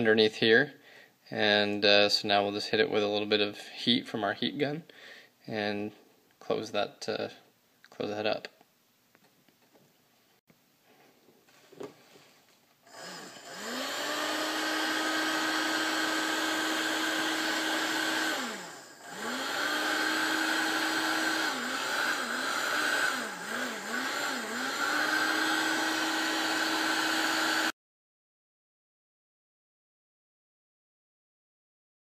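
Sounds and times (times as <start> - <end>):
heat gun fan running: 12.9 - 27.7.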